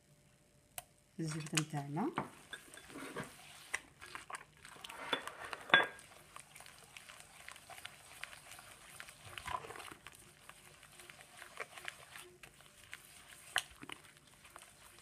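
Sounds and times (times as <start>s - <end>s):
hand squelching butter and eggs: 2.6s - 15.0s.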